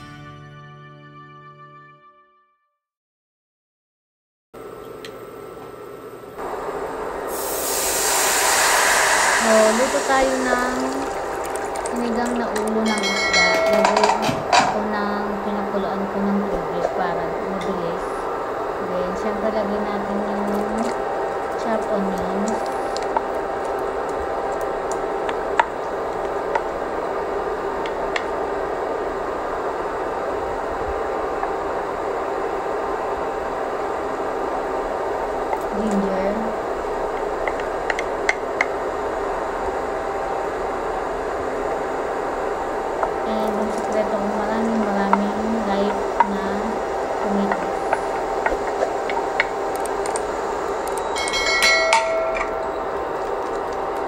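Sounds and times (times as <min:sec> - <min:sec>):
stove whirring hiss: 0:04.6 - 0:54.0
steel plate clinking: 0:12.8 - 0:14.6, 0:51.0 - 0:52.9.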